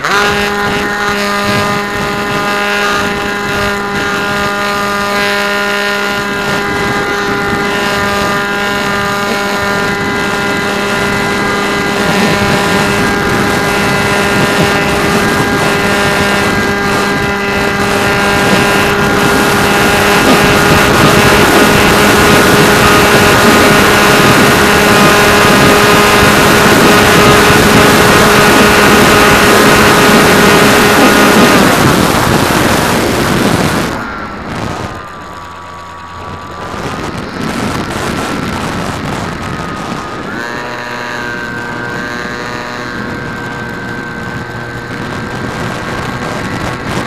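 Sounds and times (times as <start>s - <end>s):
model airplane motor whine: 0.0s - 47.0s
wind rushing over microphone: 0.0s - 47.0s.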